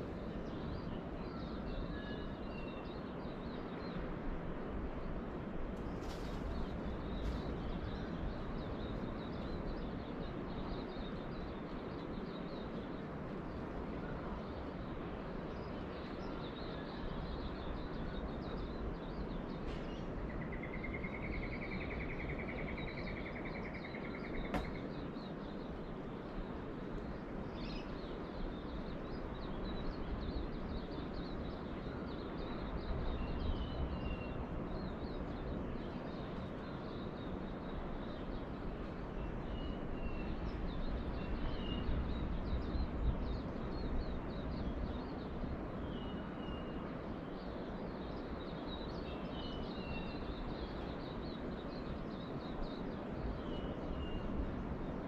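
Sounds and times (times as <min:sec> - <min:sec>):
birds chirping: 0:23.7 - 0:25.8.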